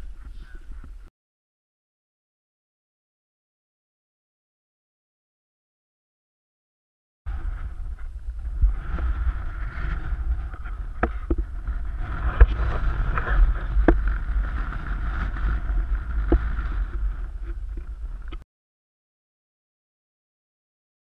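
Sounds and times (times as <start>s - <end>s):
wind buffeting microphone: 7.3s - 18.4s.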